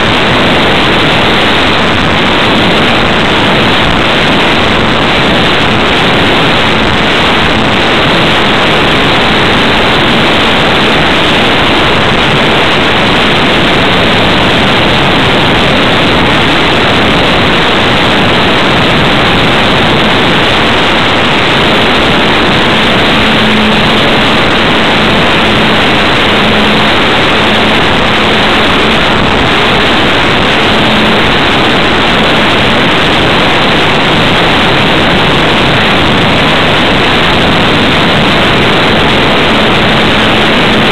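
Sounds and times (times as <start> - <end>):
propeller noise: 0.0 - 40.9
wind rushing: 0.0 - 40.9
electric motor hum: 19.5 - 33.0.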